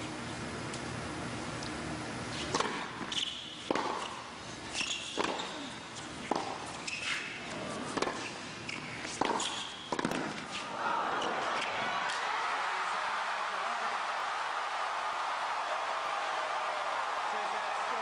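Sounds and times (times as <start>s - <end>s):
racket hitting tennis ball: 2.5s - 4.2s, 4.8s - 5.6s, 6.2s - 7.3s, 7.9s - 10.6s
tennis ball bouncing: 2.5s - 4.2s, 4.8s - 5.5s, 6.2s - 7.2s, 7.9s - 10.4s.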